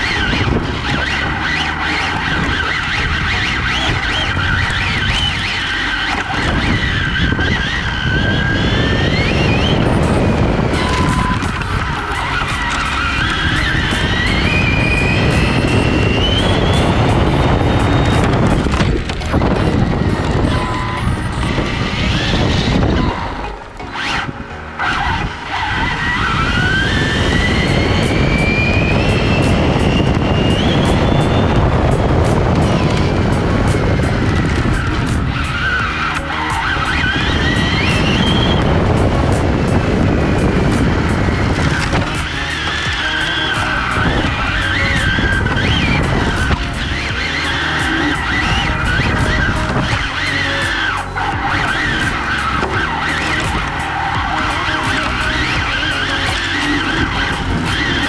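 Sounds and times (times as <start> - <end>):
electric motor whine: 0.0 - 58.0
tyre and drivetrain noise: 0.0 - 58.0.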